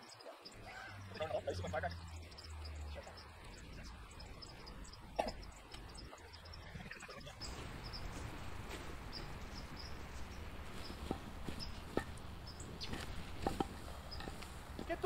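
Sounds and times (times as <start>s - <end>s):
road flares hissing: 0.5s - 15.0s.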